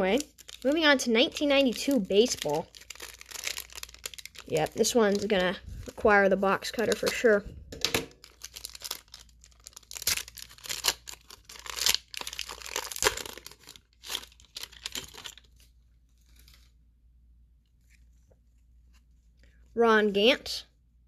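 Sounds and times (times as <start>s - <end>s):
foil wrapper tearing: 0.0s - 5.5s, 8.2s - 15.6s
faint handling sounds: 14.4s - 16.9s, 17.5s - 19.8s.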